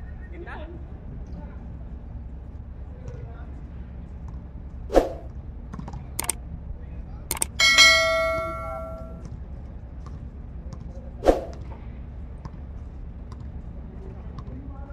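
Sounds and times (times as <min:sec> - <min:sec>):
basketball clanging on metal rim: 0:07.3 - 0:09.2.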